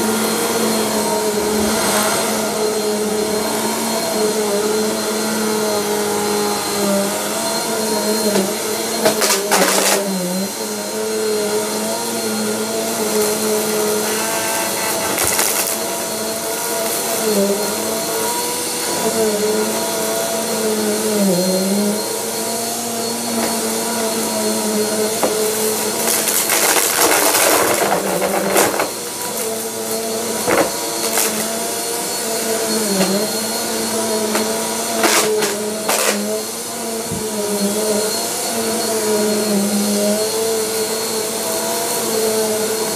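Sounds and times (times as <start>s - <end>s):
vacuum cleaner motor hum: 0.0s - 42.9s.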